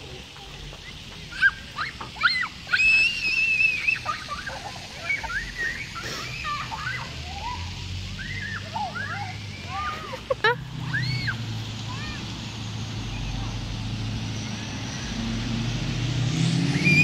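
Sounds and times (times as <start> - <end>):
young children shrieking: 1.2 - 12.4
child screaming: 1.3 - 10.2, 10.8 - 12.3.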